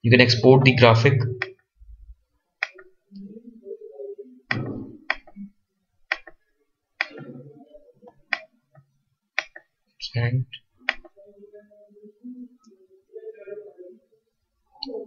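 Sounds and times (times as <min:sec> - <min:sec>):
faint low noises: 0:00.0 - 0:15.0
computer mouse button clicking: 0:02.6 - 0:02.9, 0:04.5 - 0:05.4, 0:06.1 - 0:06.4, 0:09.4 - 0:09.6, 0:10.9 - 0:11.1.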